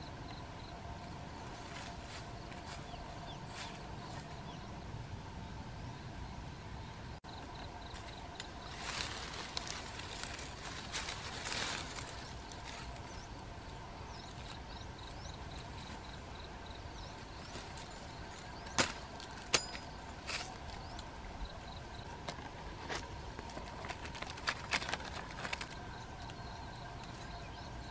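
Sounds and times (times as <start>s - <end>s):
rustling leaves: 0.0s - 27.9s
machete striking ground: 18.7s - 20.6s.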